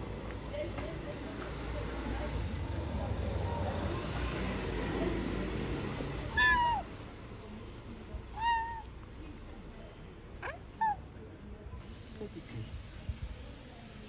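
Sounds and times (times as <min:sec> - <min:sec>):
cat meowing: 0:06.3 - 0:06.9, 0:08.3 - 0:08.9, 0:10.4 - 0:11.0.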